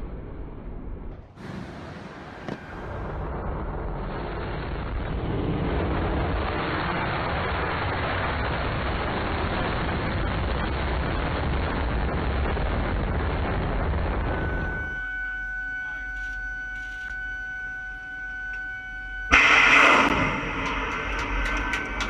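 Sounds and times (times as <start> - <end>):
rocket motor roaring: 19.3 - 22.0.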